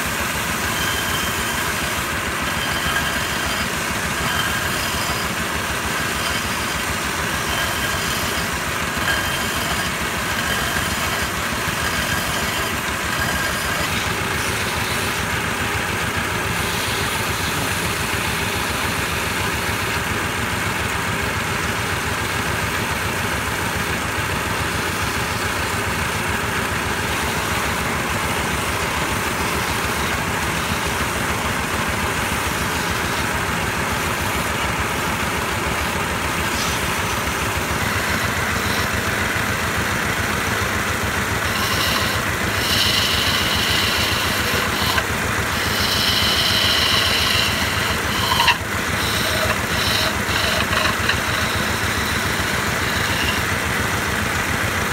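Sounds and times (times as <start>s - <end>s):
sandpaper on spinning wood: 0.0s - 19.6s, 36.1s - 54.4s
wood lathe running: 0.0s - 54.9s.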